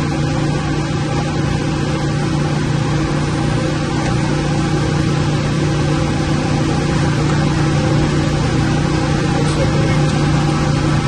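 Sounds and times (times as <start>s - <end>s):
machinery drone with low hum: 0.0s - 11.0s.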